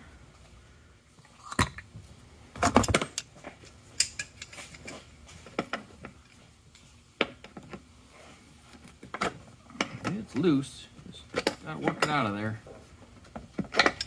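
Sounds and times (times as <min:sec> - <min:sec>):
metal tools clicking and clinking: 0:02.7 - 0:05.0, 0:11.3 - 0:12.4, 0:13.7 - 0:14.0.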